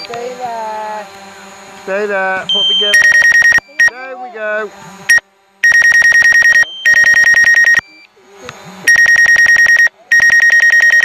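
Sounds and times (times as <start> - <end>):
rapid electronic beeping: 2.5 - 4.0, 5.1 - 8.1, 8.9 - 11.0.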